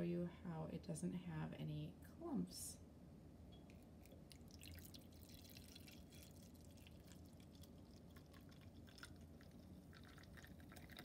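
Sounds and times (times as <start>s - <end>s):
liquid trickling into cup: 3.7s - 11.0s.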